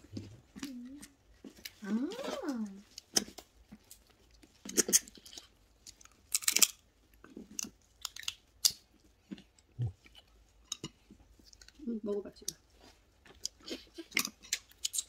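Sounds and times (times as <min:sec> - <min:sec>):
chewing: 0:00.0 - 0:11.8, 0:12.4 - 0:15.0
crab shell cracking: 0:04.6 - 0:06.8, 0:07.4 - 0:08.9.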